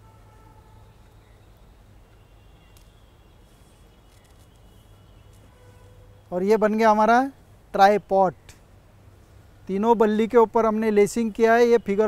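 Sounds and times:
soft bird chirps: 0.8s - 6.4s.

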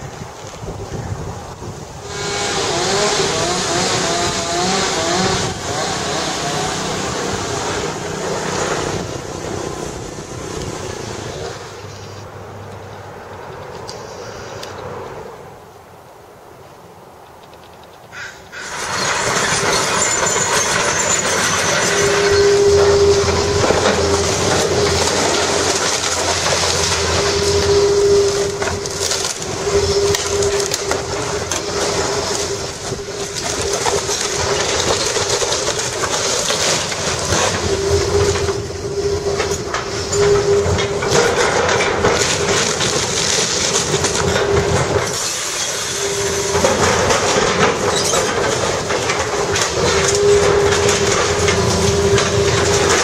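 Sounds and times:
excavator engine and hydraulics: 0.0s - 16.2s, 17.2s - 53.0s
concrete crunching and clanking: 18.6s - 53.0s.

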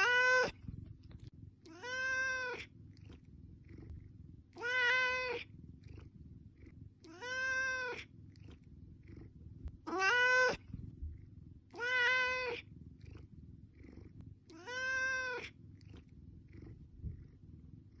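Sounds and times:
cat meowing: 0.0s - 0.6s, 1.7s - 2.7s, 4.6s - 5.5s, 7.0s - 8.1s, 9.8s - 10.7s, 11.8s - 12.7s, 14.5s - 15.6s.

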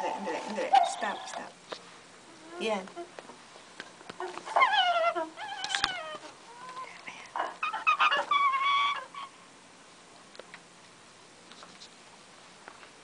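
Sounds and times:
recorded animal calls: 0.0s - 1.6s, 4.1s - 9.5s.

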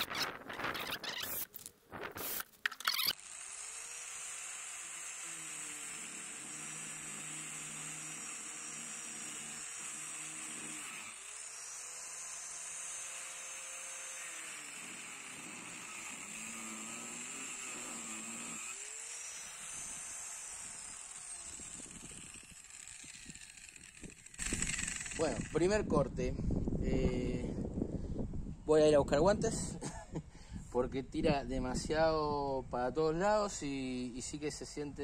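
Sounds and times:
angle grinder cutting wood: 0.0s - 26.0s.

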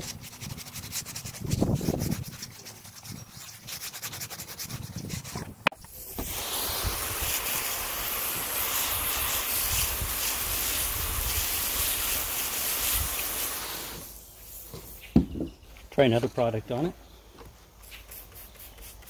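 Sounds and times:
hose water spraying: 5.8s - 15.1s.

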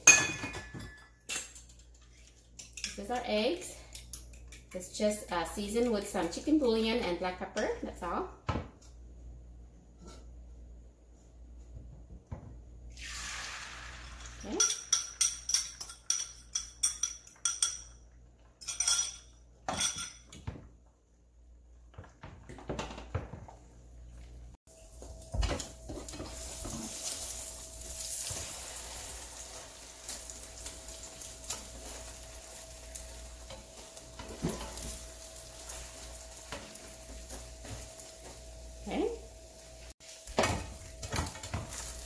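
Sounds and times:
eggs sizzling in a frying pan: 12.9s - 15.5s, 24.8s - 42.0s
metal utensil clinking on ceramic bowl: 14.4s - 18.0s, 18.6s - 20.4s.

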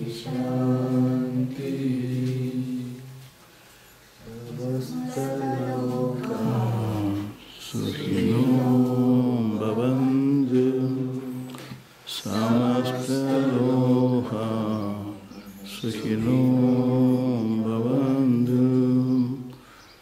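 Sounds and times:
voices chanting devotional song: 0.0s - 20.0s.

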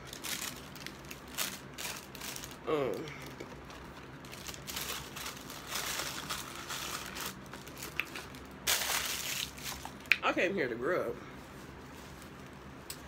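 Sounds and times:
paper wrapper crinkling: 0.0s - 10.1s.

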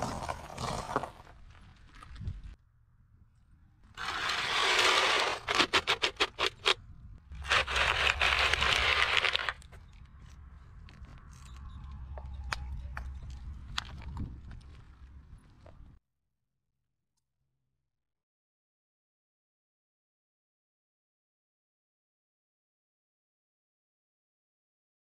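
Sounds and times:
tyre crushing cake scraping: 4.0s - 6.8s, 7.4s - 9.7s.

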